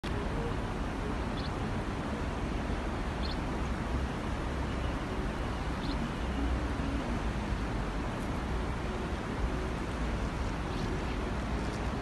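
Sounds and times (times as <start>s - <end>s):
city background rumble: 0.0s - 12.0s.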